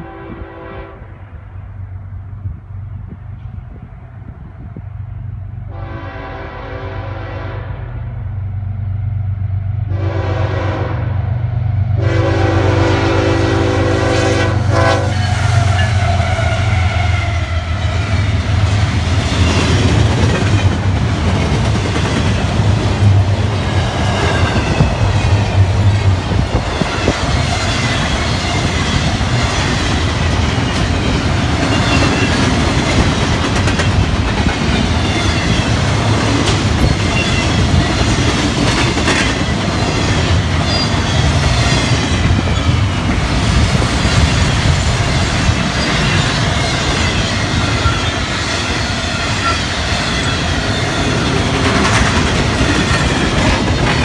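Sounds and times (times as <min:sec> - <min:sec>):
locomotive horn blasts: 0:00.0 - 0:01.2, 0:05.7 - 0:08.0, 0:09.9 - 0:11.2, 0:12.0 - 0:17.5
locomotive engines rumbling: 0:00.0 - 0:54.0
train cars rolling and clattering: 0:14.8 - 0:54.0.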